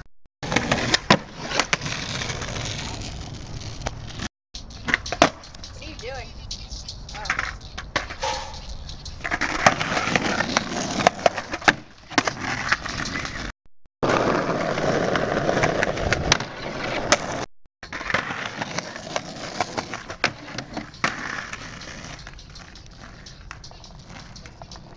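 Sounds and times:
skateboard clacks popping and landing: 0.4s - 3.1s, 4.8s - 5.4s, 7.3s - 8.4s, 9.2s - 24.9s
skateboard wheels rolling on pavement: 0.4s - 24.9s.

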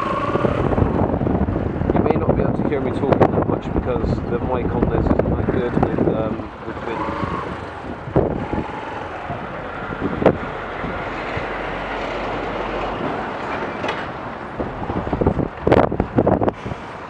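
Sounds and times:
motorcycle engine: 0.0s - 1.9s, 5.2s - 15.8s
trailer clatter: 0.0s - 17.0s
wind on microphone: 0.0s - 17.0s.

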